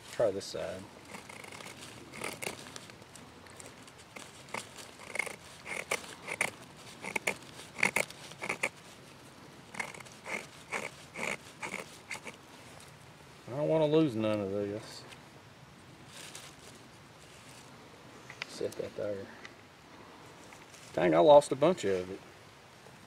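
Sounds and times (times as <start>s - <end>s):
blade scraping wood stick: 1.1s - 9.0s, 9.7s - 12.4s.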